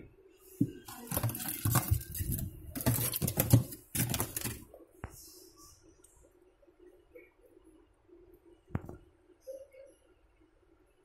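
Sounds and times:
aluminium foil rustling and crackling: 0.8 - 4.6.

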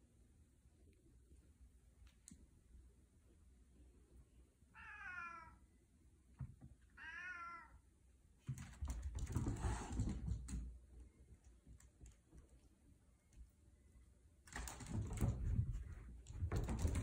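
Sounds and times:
cat meowing: 4.7 - 5.6, 6.9 - 7.8.

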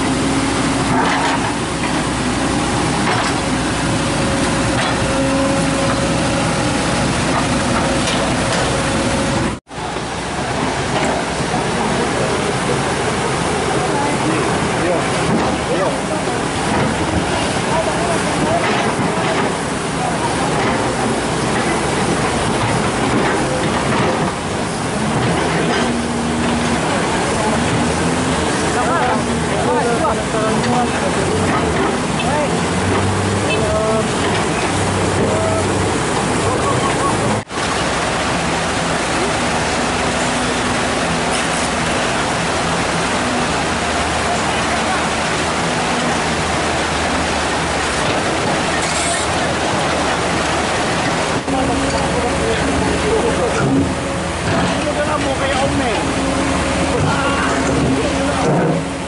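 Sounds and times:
excavator engine running: 0.0 - 59.0
rushing floodwater: 0.0 - 59.0
crawler tracks clattering: 12.5 - 59.0.

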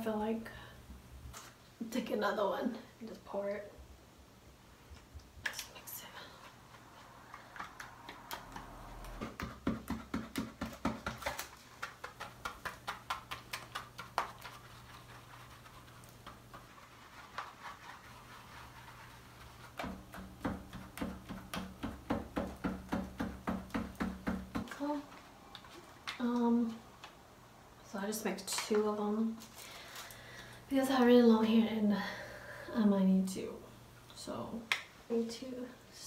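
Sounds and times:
brush scraping plastic bowl: 6.4 - 21.8.

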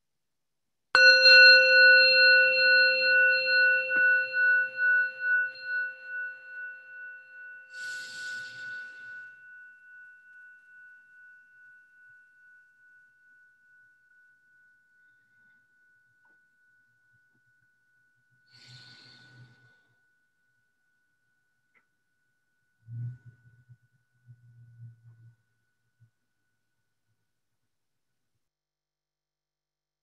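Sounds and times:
singing bowl ringing: 1.0 - 21.6.

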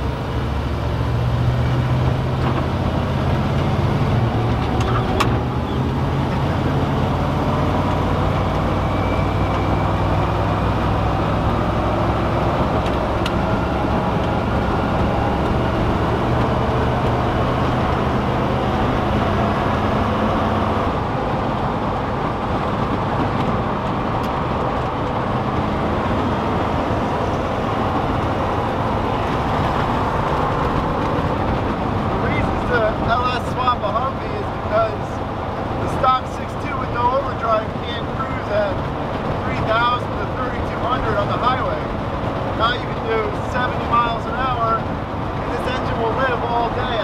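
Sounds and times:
engine drone: 0.0 - 47.0
tyre and wind noise: 0.8 - 33.1.

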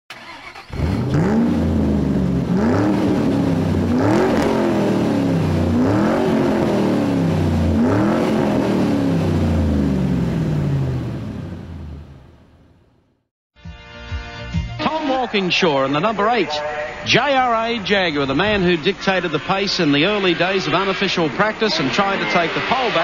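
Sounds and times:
car engine revving: 0.1 - 12.8.

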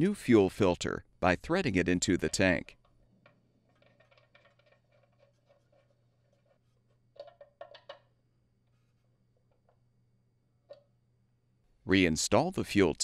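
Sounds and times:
faint scratching of filter threads: 3.6 - 7.6, 8.6 - 9.8.

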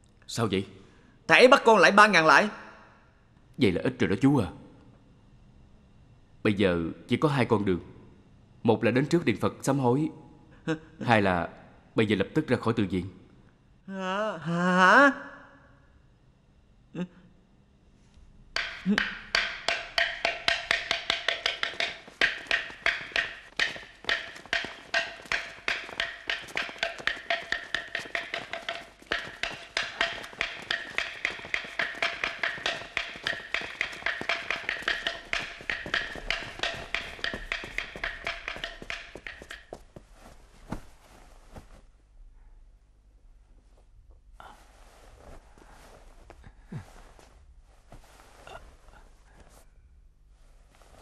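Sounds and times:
wooden temple block struck: 18.6 - 40.0.

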